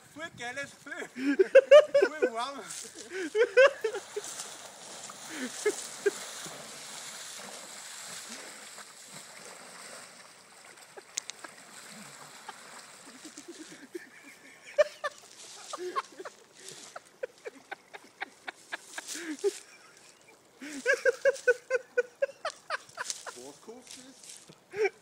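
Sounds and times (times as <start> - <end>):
water splashing from wading: 2.9 - 21.1.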